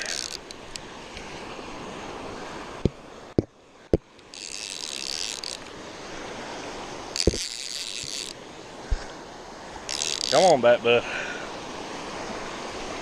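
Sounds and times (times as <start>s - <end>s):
fishing reel buzzing: 0.0s - 0.6s, 4.2s - 5.7s, 7.1s - 8.4s, 9.8s - 10.6s
surf washing: 0.0s - 13.0s.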